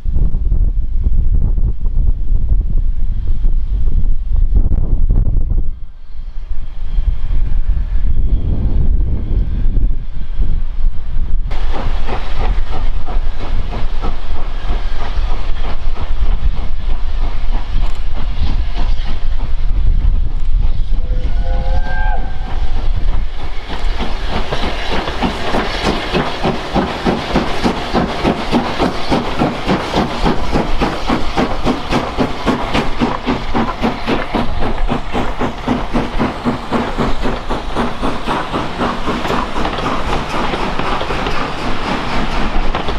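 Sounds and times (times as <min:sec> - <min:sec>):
steam train running: 0:00.0 - 0:42.9
clickety-clack of train wheels: 0:11.5 - 0:42.9
steam whistle: 0:20.8 - 0:22.9.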